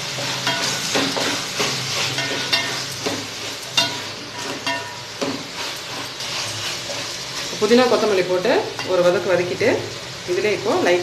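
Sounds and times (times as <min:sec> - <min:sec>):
masala sizzling: 0:00.0 - 0:11.0
wooden spatula scraping metal pot: 0:00.2 - 0:08.1
spatula knocking pot: 0:00.4 - 0:05.5.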